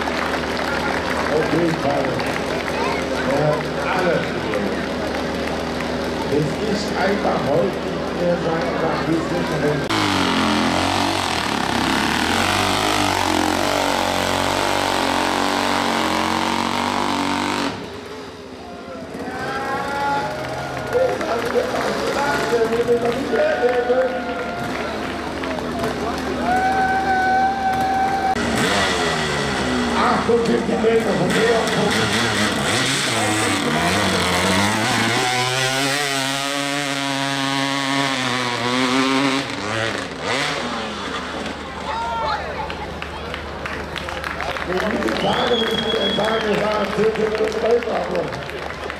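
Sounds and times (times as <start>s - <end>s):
dirt bike engine revving: 3.2s - 41.9s
voices: 18.5s - 28.4s, 40.7s - 48.9s.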